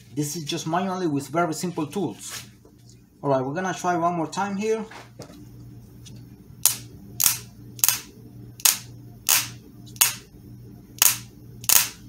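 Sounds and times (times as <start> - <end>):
ignition coil spark snaps: 6.6 - 10.3, 11.0 - 12.0.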